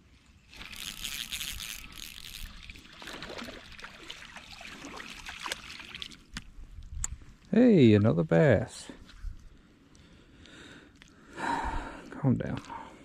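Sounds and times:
fish splashing and thrashing: 0.4s - 6.5s
spinning reel cranking: 0.5s - 2.8s.

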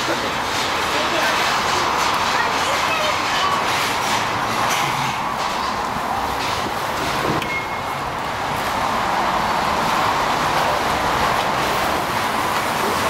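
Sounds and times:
road traffic din: 0.0s - 13.0s
short high beep: 7.4s - 8.0s.

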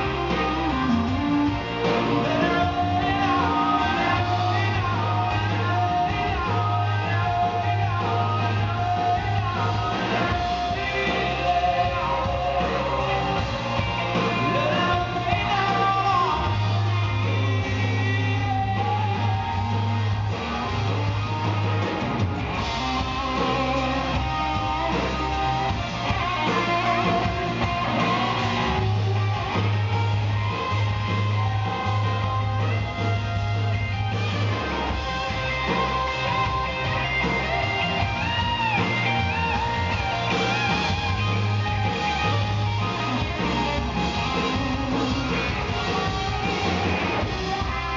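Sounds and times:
man singing lead vocal: 0.0s - 21.9s, 22.5s - 29.6s, 43.1s - 47.9s
acoustic and electric guitars: 0.0s - 47.9s
drums: 0.0s - 47.9s
keyboard: 0.0s - 47.9s
steady bass: 0.0s - 47.9s.

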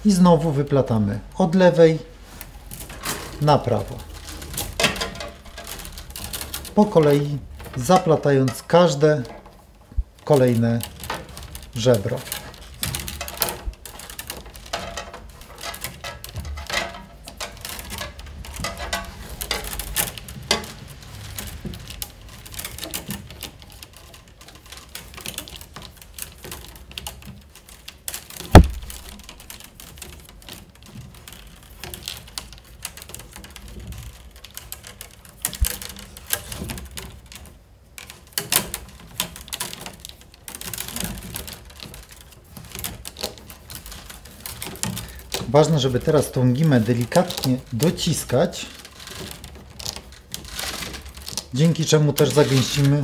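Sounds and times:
willow rods rustling and clicking: 0.0s - 53.0s
sharp knock: 28.5s - 29.0s.

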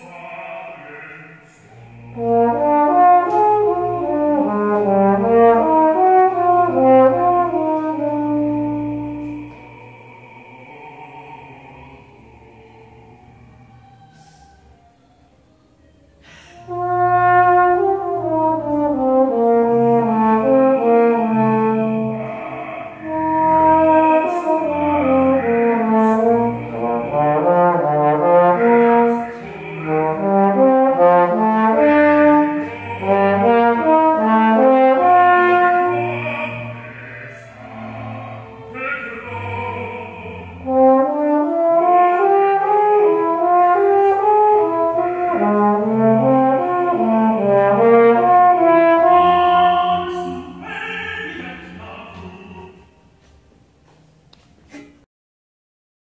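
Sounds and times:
solo trombone playing: 2.1s - 9.6s, 16.6s - 22.4s, 23.0s - 36.9s, 40.6s - 51.4s.

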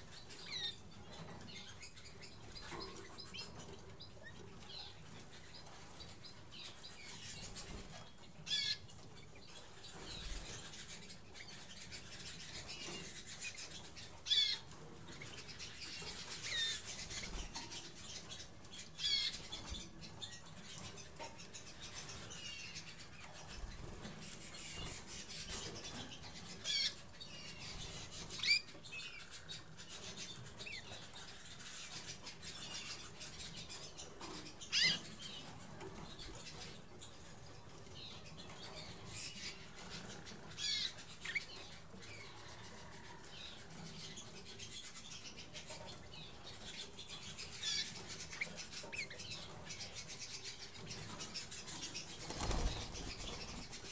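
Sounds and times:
canaries chirping: 0.0s - 53.9s
wing flutters: 47.4s - 53.9s.

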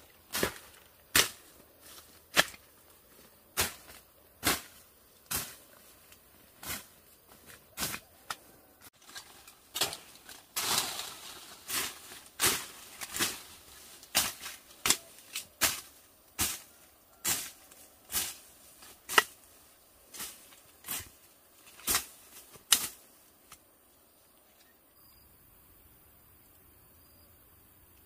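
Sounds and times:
leaves rustling: 0.0s - 24.7s
blade chopping through brush: 0.3s - 1.5s, 2.3s - 2.7s, 3.6s - 5.6s, 9.0s - 19.5s, 20.1s - 23.0s.

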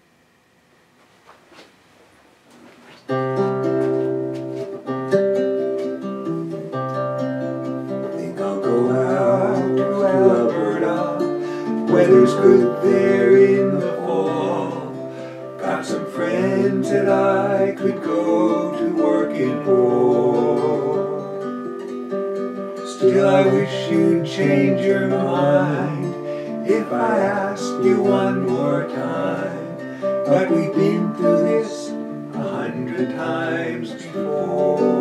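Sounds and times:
acoustic guitar playing: 3.0s - 35.0s
man singing: 8.0s - 21.4s, 22.8s - 35.0s.

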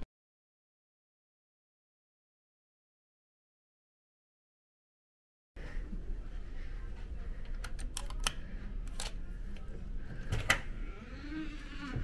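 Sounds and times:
steady low hum: 5.6s - 12.0s.

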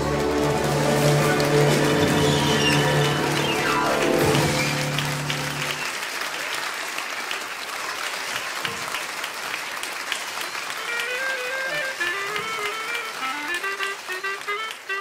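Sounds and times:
held chord with descending run: 0.0s - 5.8s, 10.9s - 15.0s
audience applauding: 0.0s - 15.0s.

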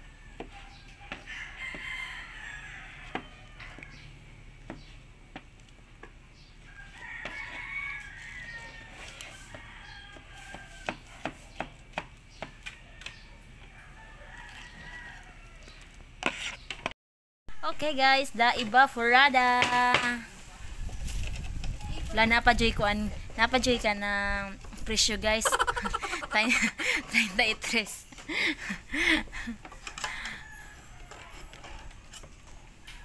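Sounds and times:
rooster crowing: 0.0s - 4.1s, 6.7s - 11.2s, 12.6s - 15.9s, 29.8s - 31.9s
knife chopping on plastic board: 10.8s - 12.7s.

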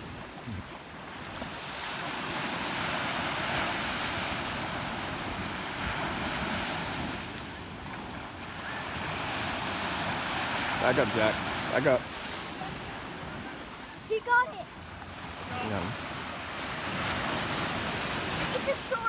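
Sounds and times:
wind on microphone: 0.0s - 11.7s
surf breaking on beach: 0.0s - 19.0s.

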